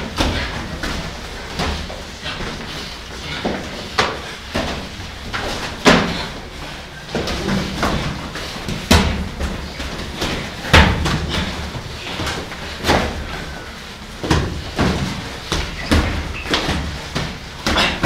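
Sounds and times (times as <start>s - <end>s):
punches and kicks smacking pads: 7.1s - 13.2s, 14.2s - 18.0s.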